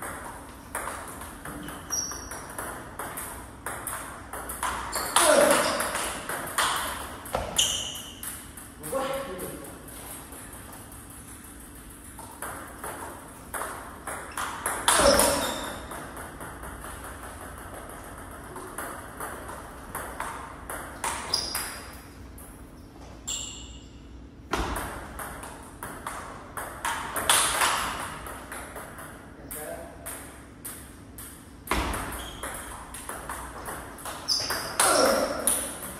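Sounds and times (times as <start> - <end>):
ping pong ball clicking: 0.0 - 8.8, 9.9 - 22.6, 24.6 - 29.3.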